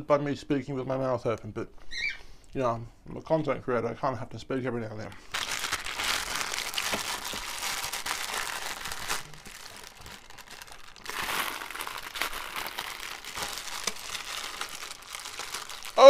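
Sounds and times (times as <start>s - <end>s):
plastic bag crinkling: 5.1s - 16.0s.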